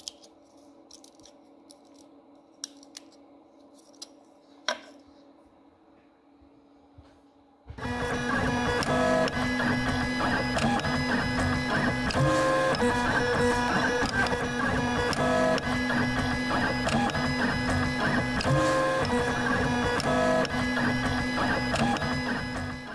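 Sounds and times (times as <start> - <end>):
printer stepper motors whining: 7.8 - 22.9.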